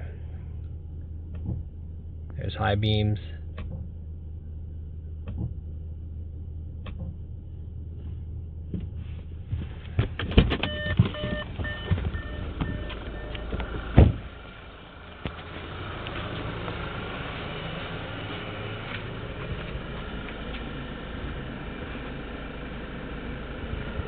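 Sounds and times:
low steady car interior hum: 0.0 - 24.0
car door opening with rattles: 9.6 - 14.3
warning chime beeping: 10.7 - 13.6
car door slamming shut: 13.9 - 14.3.

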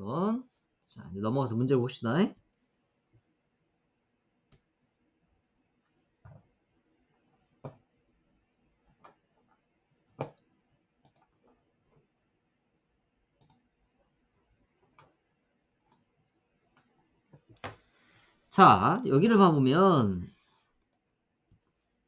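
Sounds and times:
computer mouse clicks: 10.2 - 11.4, 13.4 - 13.7, 14.9 - 15.2, 15.8 - 16.1.

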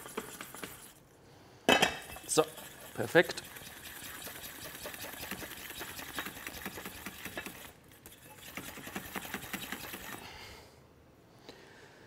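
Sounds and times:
utensil stirring sauce in pot: 0.0 - 1.1, 2.0 - 10.3.

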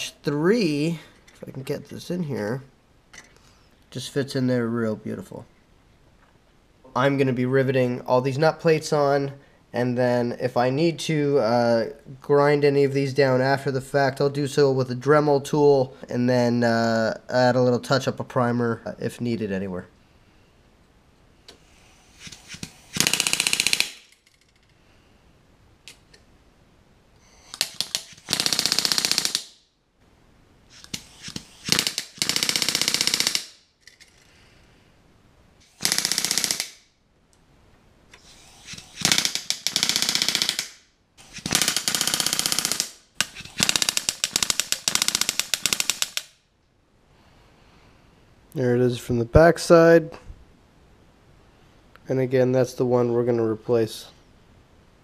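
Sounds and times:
pneumatic rivet gun hammering: 22.1 - 24.1, 27.4 - 29.5, 30.7 - 33.6, 35.6 - 36.8, 38.2 - 46.4.

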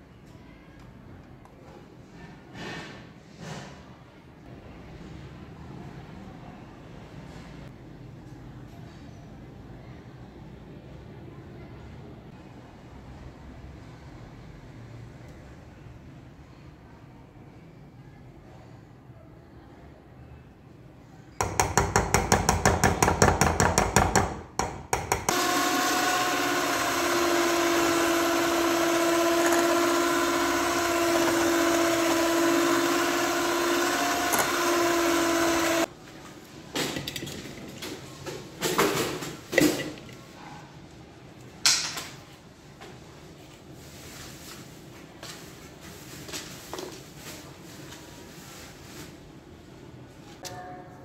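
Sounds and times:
electric hand mixer running: 25.1 - 35.9.

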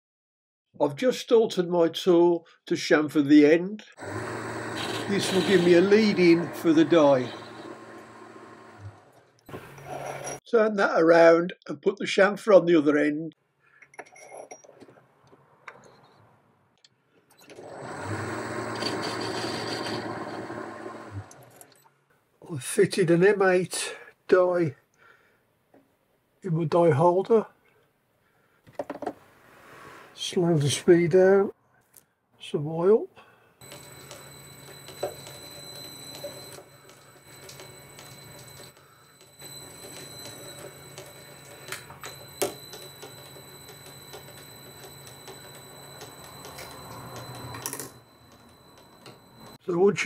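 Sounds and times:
metal lathe running: 4.0 - 9.8, 17.6 - 21.5, 33.6 - 49.6.

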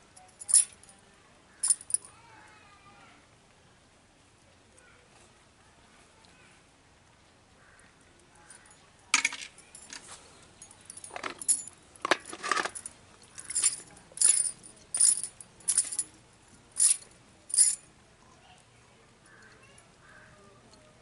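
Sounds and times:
snail shells clinking: 1.6 - 2.1, 10.8 - 17.9.

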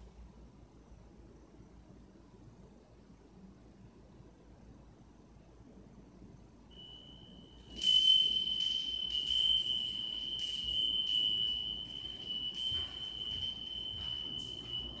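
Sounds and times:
meditation chime ringing: 6.7 - 15.0.

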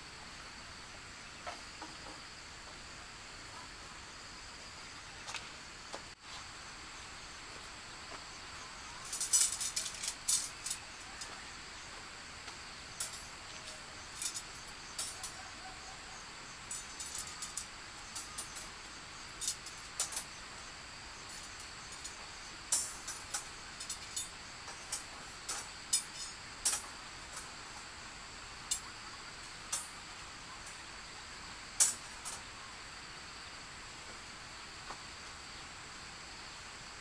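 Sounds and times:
high-pitched insect drone: 0.0 - 37.0
sharp metallic clinks and taps: 9.0 - 11.4, 12.9 - 15.4, 16.6 - 18.8, 19.4 - 20.3, 21.3 - 27.5, 31.8 - 32.4.

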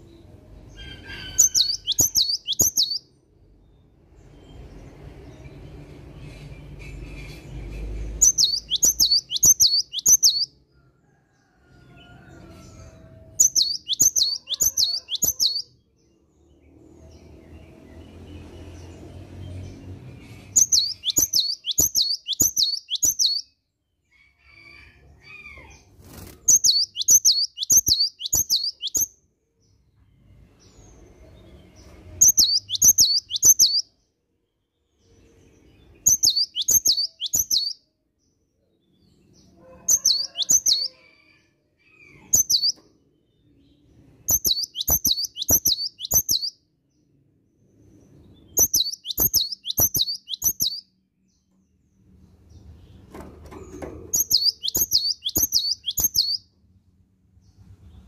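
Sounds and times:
bird whistling song: 0.8 - 3.1, 8.2 - 10.5, 13.4 - 15.7, 20.6 - 23.5, 26.5 - 29.1, 32.2 - 33.9, 36.0 - 37.8, 42.3 - 42.8, 44.3 - 46.6, 48.5 - 50.9, 54.2 - 56.4.

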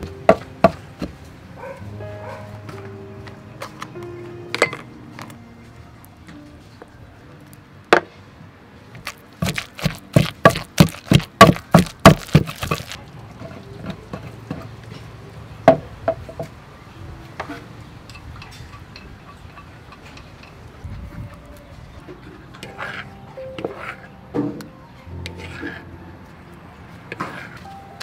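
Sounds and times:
pestle pounding in a clay mortar: 9.0 - 13.0
pestle taps and scrapes: 9.0 - 13.0.

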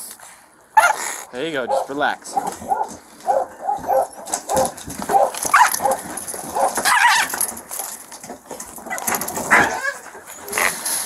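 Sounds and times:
dogs barking and yelping: 0.8 - 11.0.

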